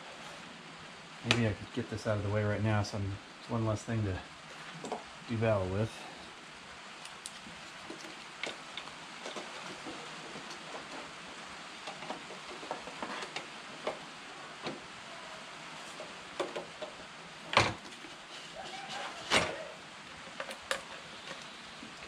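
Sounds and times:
clicks and rubbing of rubber hose: 7.0s - 14.0s.

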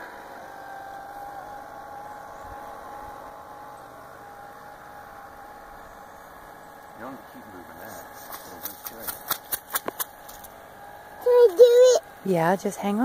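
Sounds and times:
electric boat motor whining: 0.0s - 13.0s.

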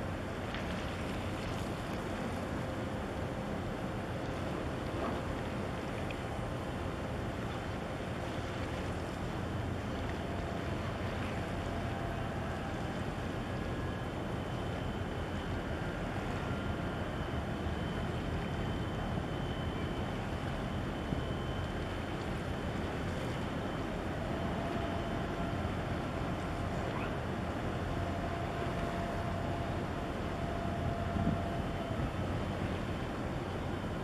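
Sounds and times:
wind on microphone: 31.0s - 31.6s.

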